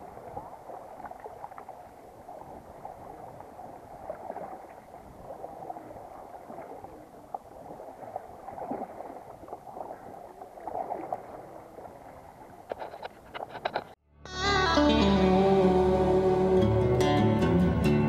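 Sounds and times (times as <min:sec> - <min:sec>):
paddle splashing: 0:00.0 - 0:14.0
water sloshing along hull: 0:00.0 - 0:14.0.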